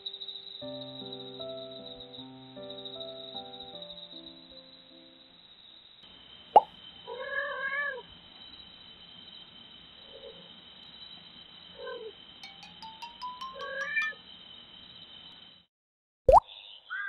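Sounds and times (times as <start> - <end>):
cat meowing: 7.1 - 8.0.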